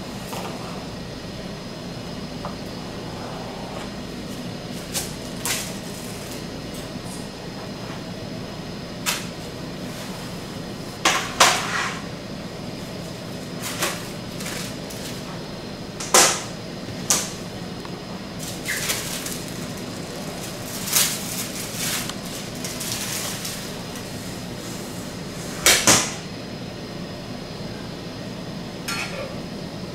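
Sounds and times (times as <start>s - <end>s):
steady low hum: 0.0s - 29.9s
parchment paper rustle: 18.4s - 25.0s.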